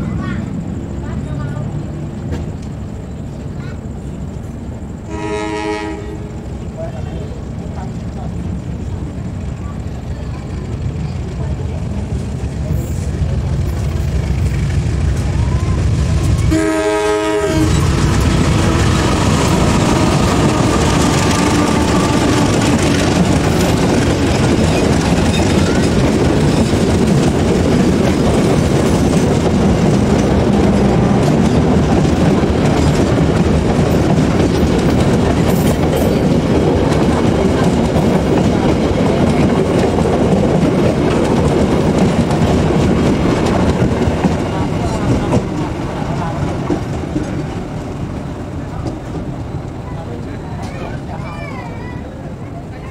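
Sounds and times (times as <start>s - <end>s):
train wheels rumbling on rails: 0.0s - 52.9s.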